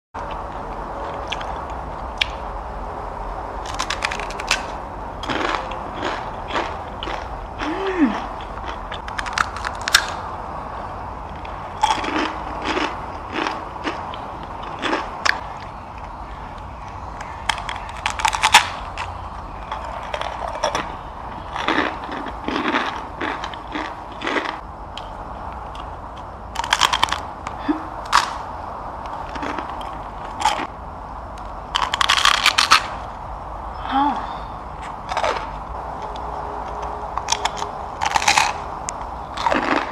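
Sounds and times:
low hum: 0:00.2 - 0:39.9
crunching dry noodles: 0:03.6 - 0:10.2, 0:11.3 - 0:24.6, 0:26.5 - 0:27.3, 0:29.1 - 0:30.7, 0:31.7 - 0:33.0, 0:37.2 - 0:38.7, 0:39.3 - 0:39.9.

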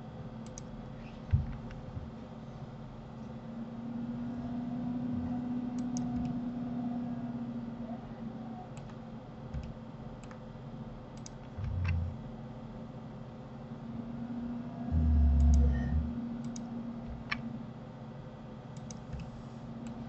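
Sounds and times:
steady hum: 0:00.0 - 0:20.0
computer mouse and keyboard clicks: 0:05.8 - 0:06.4, 0:08.7 - 0:10.4, 0:11.2 - 0:12.1, 0:15.3 - 0:17.5, 0:18.8 - 0:20.0.

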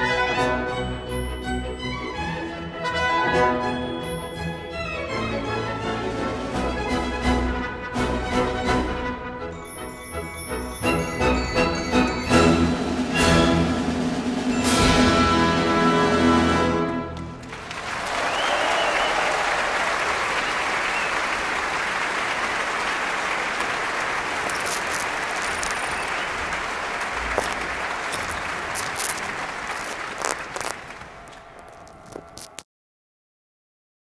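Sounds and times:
audience applauding: 0:17.2 - 0:32.6.

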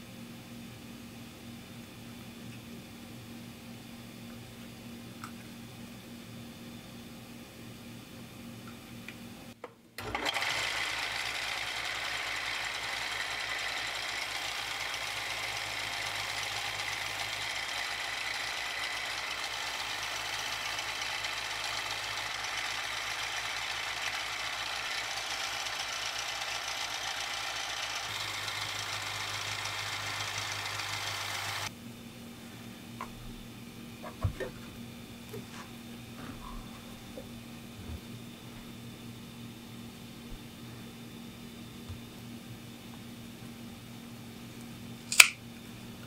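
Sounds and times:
belt sander sanding leather: 0:10.1 - 0:31.7.

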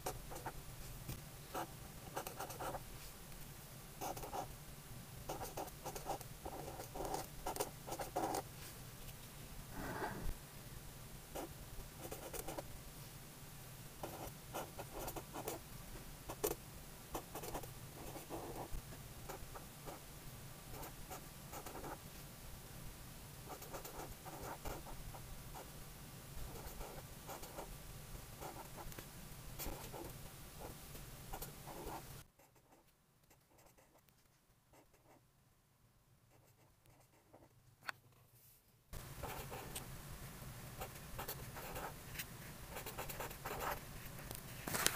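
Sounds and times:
marker scratching on paper: 0:42.7 - 0:43.8.

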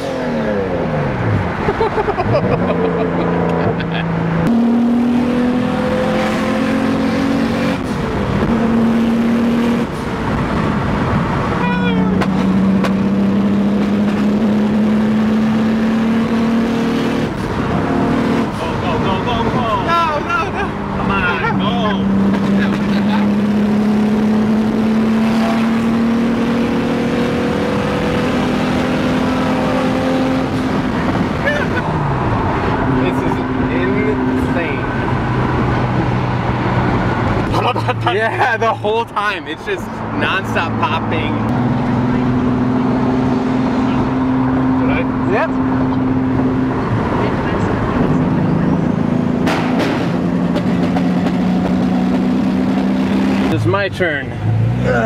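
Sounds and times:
car engine rising in pitch: 0:00.0 - 0:37.7, 0:39.9 - 0:55.0
car engine running under load: 0:41.3 - 0:53.6.

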